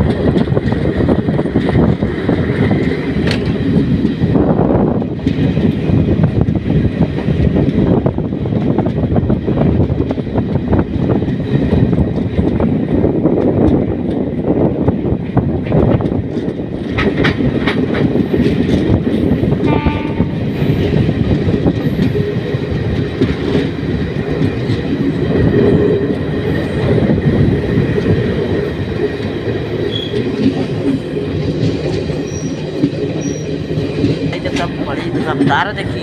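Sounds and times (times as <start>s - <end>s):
clickety-clack over rail joints: 0.0s - 36.0s
train wheels rumbling on rails: 0.0s - 36.0s.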